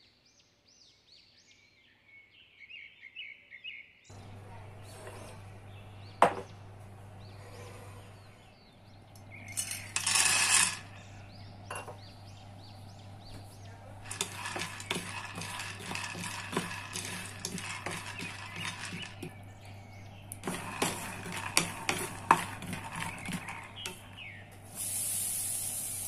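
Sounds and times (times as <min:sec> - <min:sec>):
peanuts rattling in a pan: 0:09.3 - 0:11.2, 0:14.0 - 0:19.4, 0:20.4 - 0:24.4
peanuts poured into a pan: 0:09.5 - 0:11.1, 0:14.0 - 0:19.3, 0:20.4 - 0:24.1.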